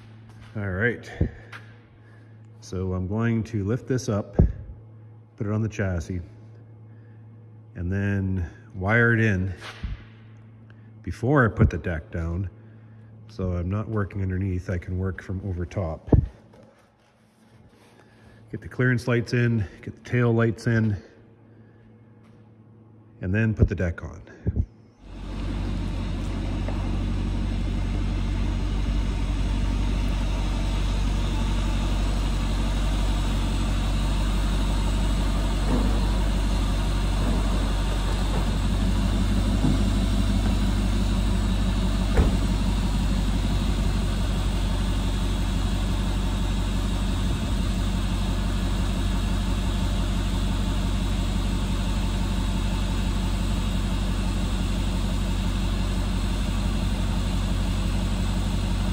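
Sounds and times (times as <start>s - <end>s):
engine idling: 0.0s - 22.9s, 24.9s - 58.9s.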